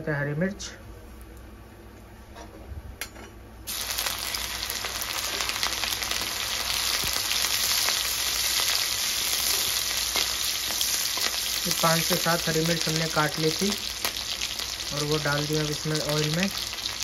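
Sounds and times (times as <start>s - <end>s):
chillies sizzling in hot oil: 3.7s - 17.0s.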